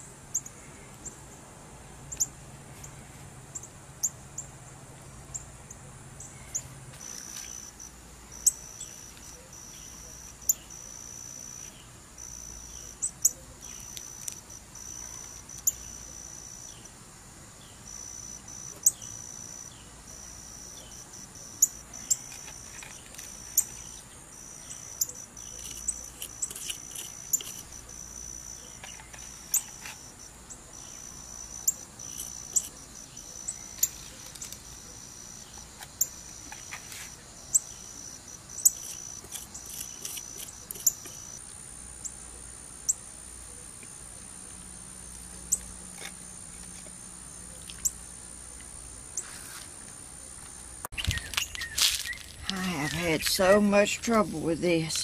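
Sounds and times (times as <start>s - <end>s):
insect trilling: 6.5s - 16.9s, 17.9s - 42.2s.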